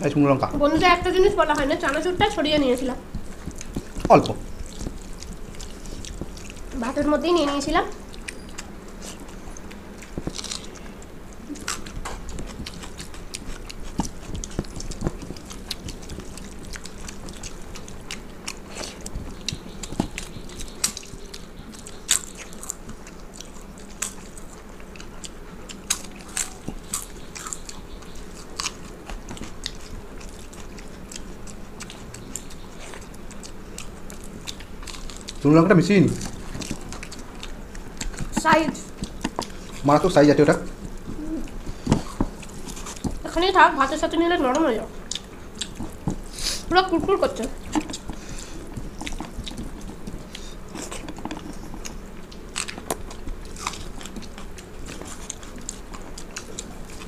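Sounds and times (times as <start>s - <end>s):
chewing: 0.8s - 57.0s
crunching bites: 8.0s - 25.1s, 47.5s - 57.0s.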